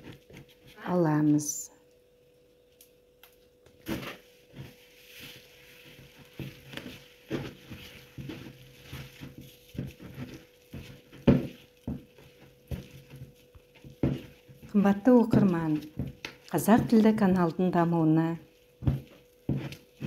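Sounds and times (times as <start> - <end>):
spatula stirring wet dough: 0.0 - 1.3, 3.8 - 20.0
spatula knocking plastic bowl: 8.2 - 17.1.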